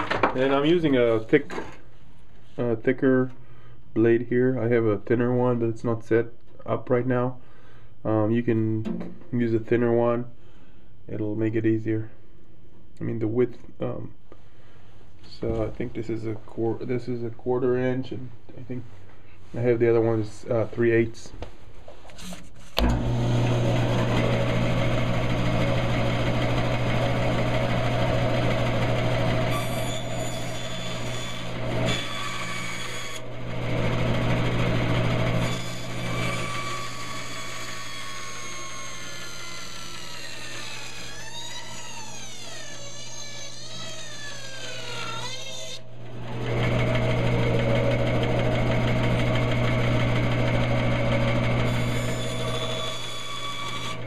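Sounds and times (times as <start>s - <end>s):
bandsaw cutting wood: 22.2s - 54.0s.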